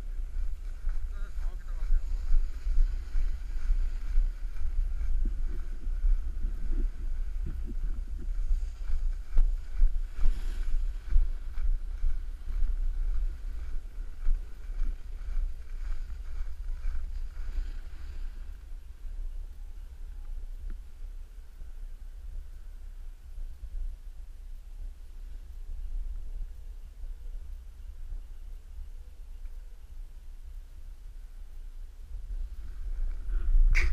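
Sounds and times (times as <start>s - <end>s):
wind buffeting microphone: 0.0s - 29.0s, 30.1s - 33.9s
skis sliding on packed snow: 0.1s - 18.7s.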